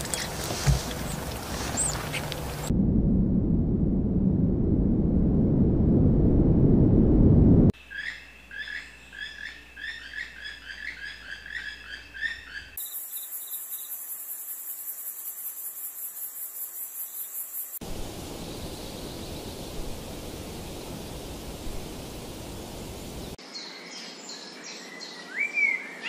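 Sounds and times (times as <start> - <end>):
songbird chirping: 0.0 - 2.7, 7.8 - 26.0
steady outdoor hiss: 0.0 - 2.7, 7.8 - 26.0
pulsing insect trill: 9.2 - 23.4.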